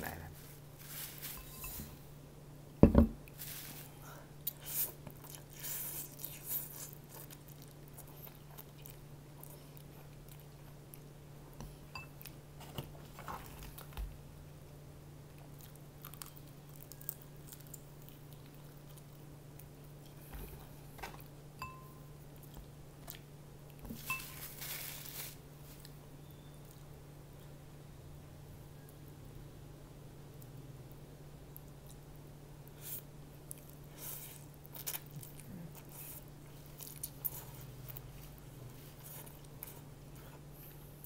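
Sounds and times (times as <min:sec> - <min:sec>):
paper tissue rustling: 0:00.3 - 0:02.0, 0:03.4 - 0:04.0, 0:24.0 - 0:25.9.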